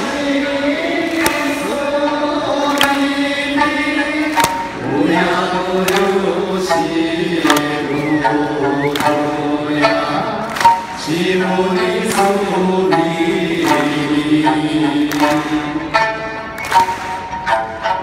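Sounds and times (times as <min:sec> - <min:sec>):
singers and crowd singing folk song: 0:00.0 - 0:18.0
plucked lute accompaniment: 0:00.8 - 0:18.0
clapping on the beat: 0:01.0 - 0:01.7, 0:02.7 - 0:03.2, 0:04.2 - 0:04.8, 0:05.7 - 0:06.3, 0:07.4 - 0:09.4, 0:10.4 - 0:11.1, 0:12.0 - 0:12.5, 0:13.5 - 0:14.2, 0:15.0 - 0:15.8, 0:16.5 - 0:17.3.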